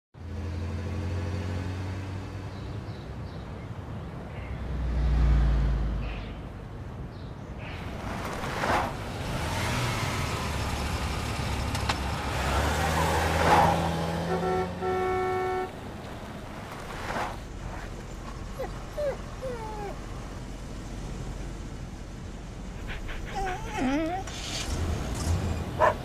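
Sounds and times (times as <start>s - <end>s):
car engine and road noise: 0.2s - 26.0s
car horn: 14.1s - 15.8s.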